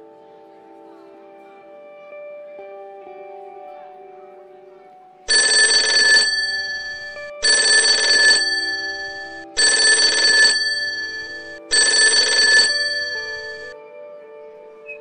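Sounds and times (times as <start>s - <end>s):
alarm clock ringing: 5.3s - 13.8s.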